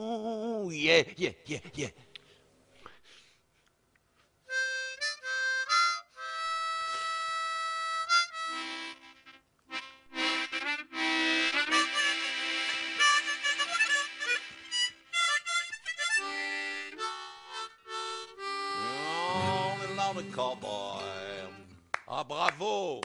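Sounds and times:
harmonica music: 0:04.5 - 0:21.7.

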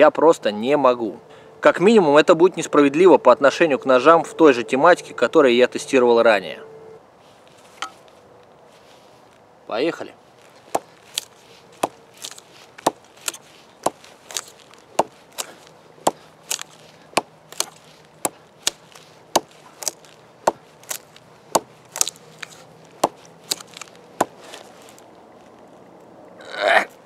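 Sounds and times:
dagger stabbing into log: 0:10.7 - 0:24.7.

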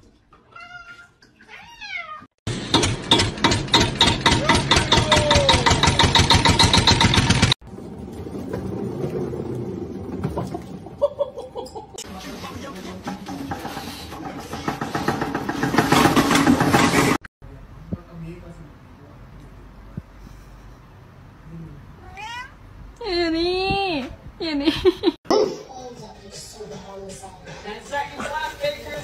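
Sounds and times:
cats meowing: 0:00.4 - 0:02.3, 0:22.0 - 0:22.6.

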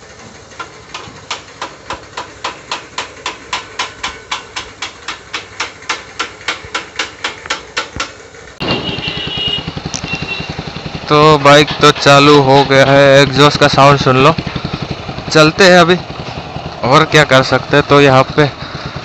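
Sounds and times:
motorcycle engine running: 0:00.0 - 0:19.0
hammer tapping on metal: 0:00.6 - 0:08.2.

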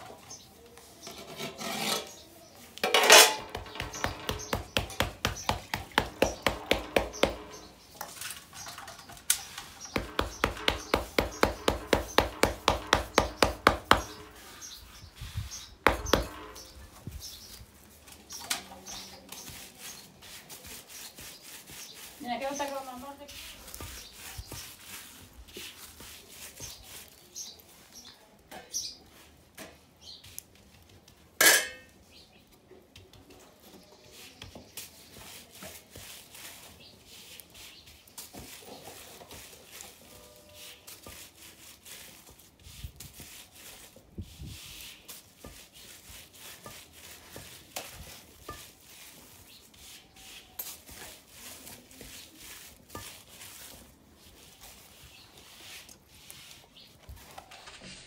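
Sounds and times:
sharp metal clank: 0:31.4 - 0:31.9.

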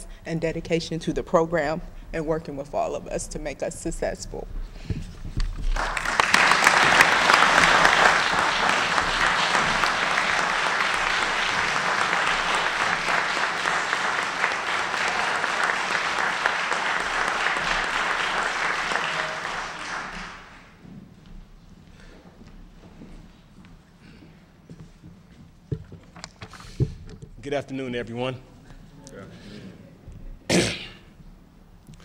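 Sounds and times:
large audience applauding: 0:05.6 - 0:20.8.

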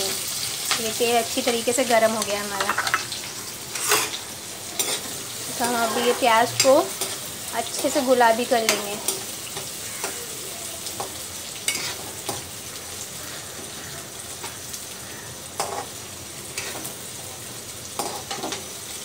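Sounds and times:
onions sizzling in hot oil: 0:00.0 - 0:19.0
spatula scraping and tapping a pan: 0:00.6 - 0:03.1, 0:03.7 - 0:04.2, 0:04.8 - 0:08.0, 0:11.0 - 0:12.5, 0:15.6 - 0:16.0, 0:16.6 - 0:17.0, 0:18.0 - 0:18.7.

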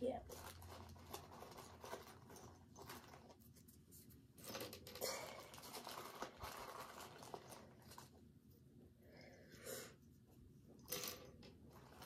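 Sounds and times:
plastic packaging crinkling: 0:00.0 - 0:03.6, 0:05.0 - 0:08.3.

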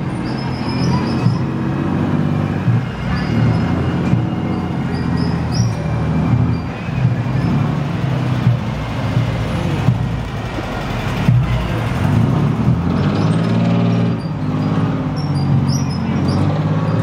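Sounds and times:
vehicle engines driving past: 0:00.0 - 0:17.0.

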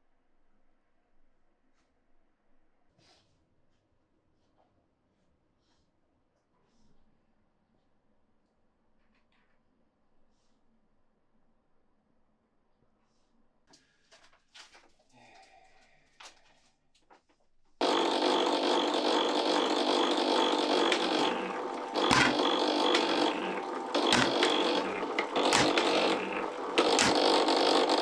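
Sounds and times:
metalworking machine humming and whining: 0:17.8 - 0:28.0
sharp knocks: 0:18.0 - 0:28.0.

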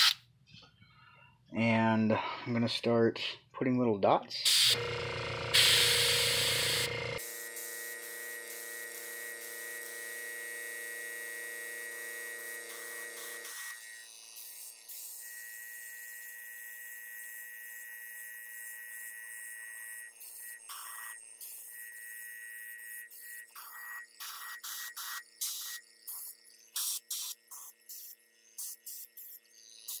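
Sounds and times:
airbrush compressor humming: 0:04.5 - 0:19.6
airbrush air hiss: 0:05.5 - 0:09.6, 0:24.2 - 0:30.0.

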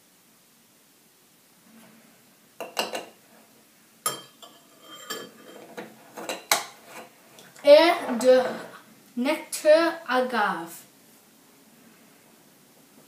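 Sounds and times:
spoon clinking on glass: 0:04.1 - 0:05.6.

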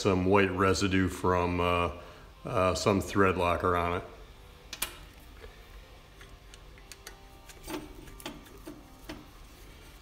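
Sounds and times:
screwdriver tapping metal: 0:06.2 - 0:09.3.

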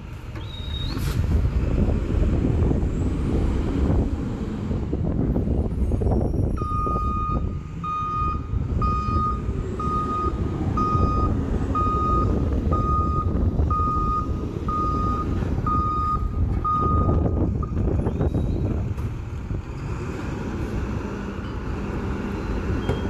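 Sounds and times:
diesel engine rumble: 0:00.0 - 0:23.0
truck back-up alarm beeping: 0:06.5 - 0:18.6, 0:22.3 - 0:23.0.

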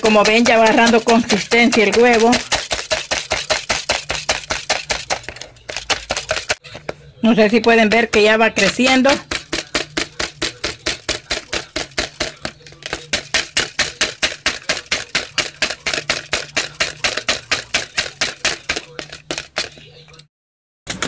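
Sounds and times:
wire whisk clicking in plastic tub: 0:08.7 - 0:19.8.

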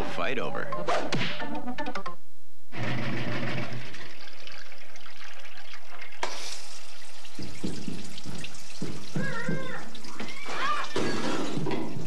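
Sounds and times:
washing machine water sloshing: 0:06.8 - 0:12.0.

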